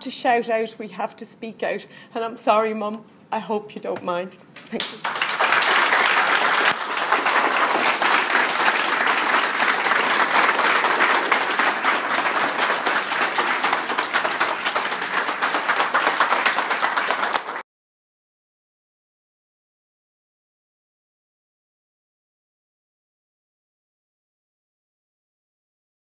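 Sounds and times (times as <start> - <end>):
audience applauding: 4.8 - 17.6.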